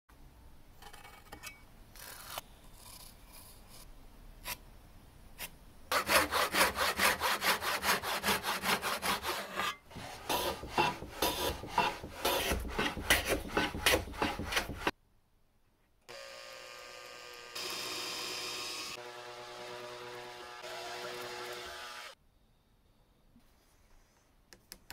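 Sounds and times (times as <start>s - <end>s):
saw cutting wood: 5.9s - 14.9s, 16.1s - 22.2s
power drill running: 16.1s - 22.2s.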